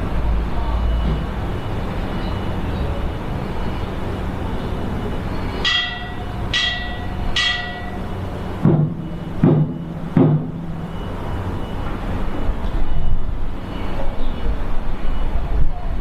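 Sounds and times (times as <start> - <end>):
temple bell ringing: 3.6 - 11.8
deep drum beat: 5.6 - 11.0.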